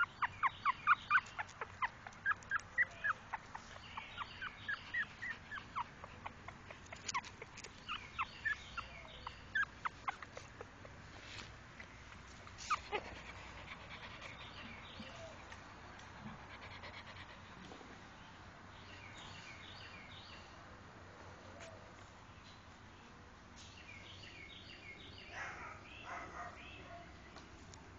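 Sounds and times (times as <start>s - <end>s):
newborn puppies squeaking: 0.0s - 11.0s, 12.0s - 15.4s.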